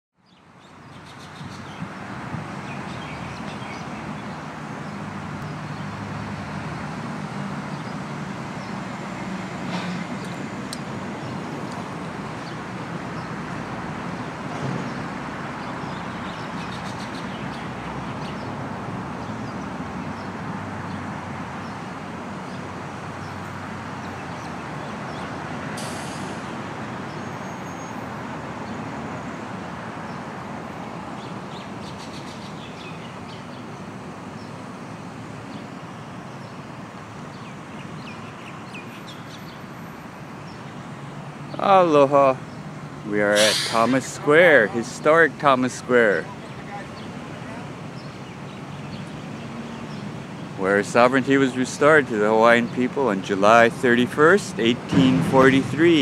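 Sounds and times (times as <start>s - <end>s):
road traffic rumble: 0.2s - 56.0s
short high hiss: 25.8s - 26.5s, 43.3s - 44.6s.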